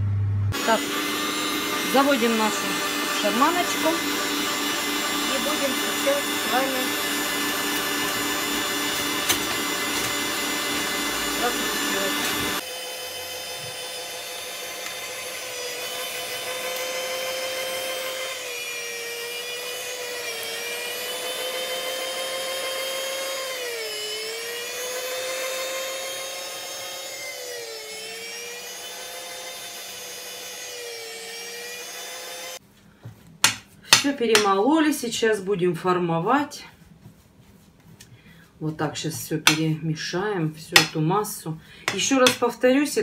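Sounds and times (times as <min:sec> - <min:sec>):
electric meat grinder motor whine: 0:00.0 - 0:32.6.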